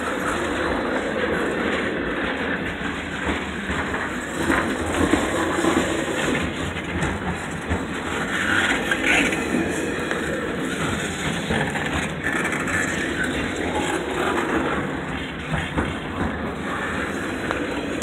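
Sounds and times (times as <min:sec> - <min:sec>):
train wheels on rails: 0:00.0 - 0:18.0.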